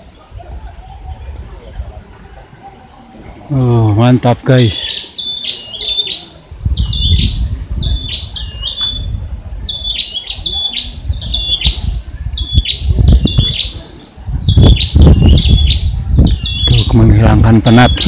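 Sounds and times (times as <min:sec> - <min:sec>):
bird chirping: 0:04.1 - 0:18.0.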